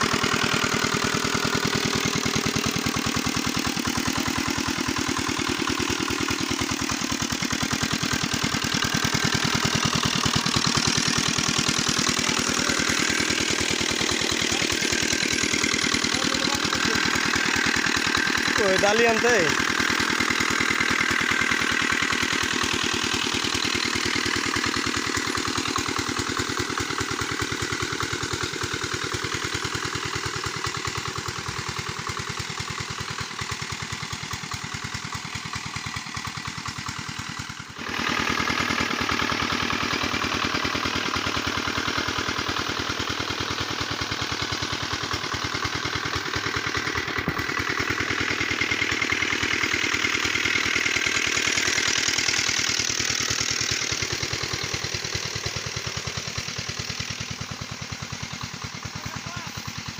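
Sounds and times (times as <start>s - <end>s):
small diesel engine running: 0.0s - 59.9s.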